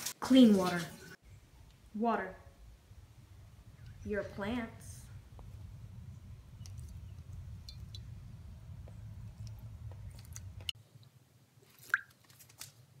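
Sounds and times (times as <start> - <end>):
low hum: 1.2 - 10.8
water crackles and wet ticks: 2.6 - 12.7.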